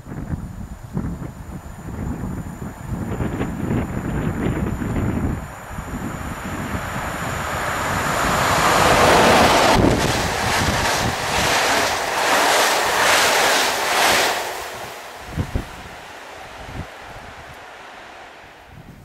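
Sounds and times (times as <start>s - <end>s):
wind buffeting microphone: 0.0s - 19.0s
train rushing past: 3.1s - 19.0s
train wheels clattering: 7.8s - 16.9s.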